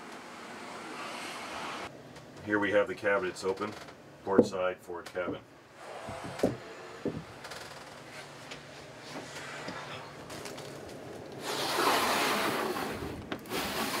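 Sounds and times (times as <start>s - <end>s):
window shade sliding: 5.8s - 7.4s, 11.3s - 14.0s.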